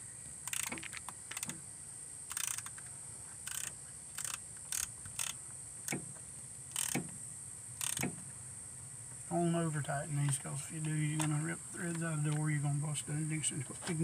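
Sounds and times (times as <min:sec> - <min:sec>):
hand ratchet clicking: 0:00.4 - 0:01.6, 0:02.3 - 0:02.8, 0:03.4 - 0:06.0, 0:06.7 - 0:07.1, 0:07.8 - 0:08.1.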